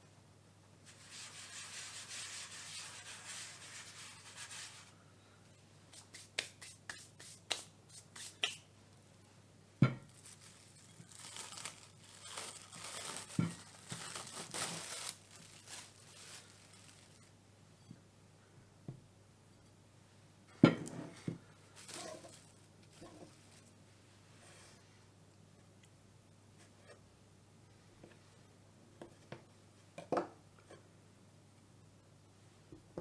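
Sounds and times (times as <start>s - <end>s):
hand sweeping flour: 0.9s - 4.9s
cling film crinkling: 10.1s - 17.3s, 21.8s - 23.7s.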